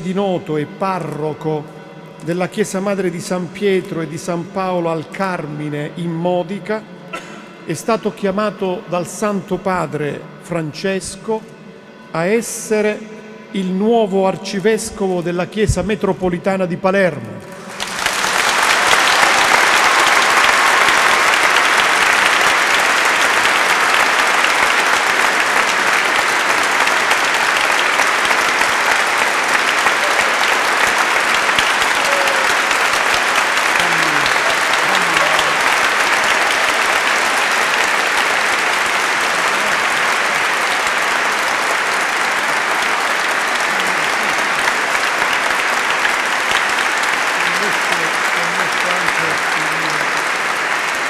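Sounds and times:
crowd applauding: 17.5s - 51.0s.

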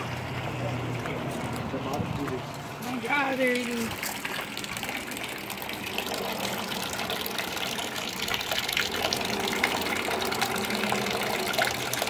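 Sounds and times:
water pouring into tank: 3.2s - 12.0s.

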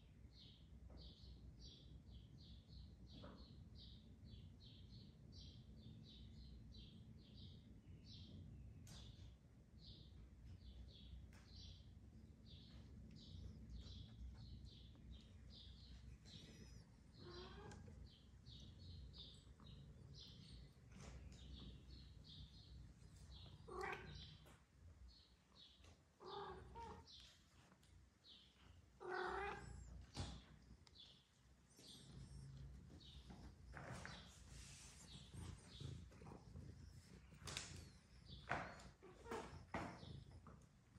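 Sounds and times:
low room hum: 0.0s - 40.9s
cats meowing: 16.2s - 18.3s, 23.4s - 24.5s, 26.2s - 27.3s, 29.0s - 30.4s, 38.7s - 40.3s.

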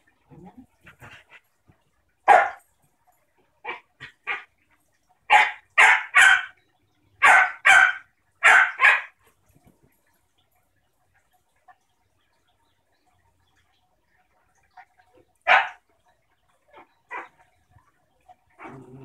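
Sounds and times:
dog barking: 2.3s - 2.6s, 5.3s - 6.6s, 7.2s - 9.2s, 15.5s - 15.8s.

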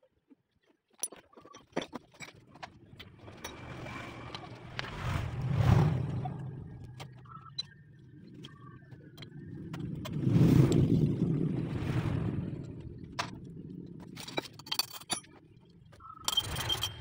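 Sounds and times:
metal engine parts clicking and knocking: 0.8s - 4.9s, 13.1s - 17.0s
passing vehicle engine: 3.2s - 7.2s.

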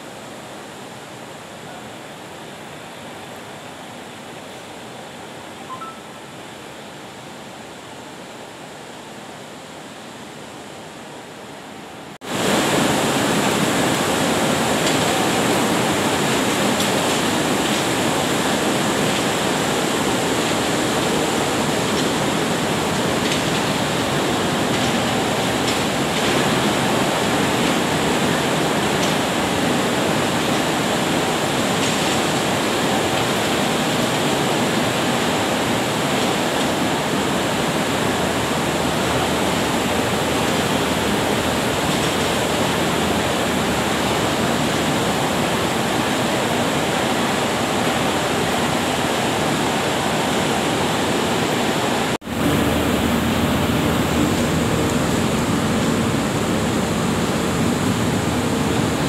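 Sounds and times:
faint high whine: 5.5s - 6.5s
machinery rushing noise: 52.2s - 59.0s.

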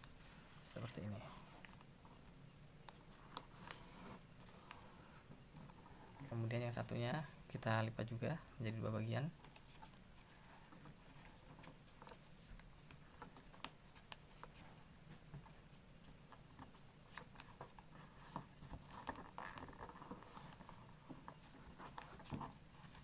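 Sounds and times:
paper rustling and creasing: 3.0s - 6.4s, 9.4s - 23.0s.

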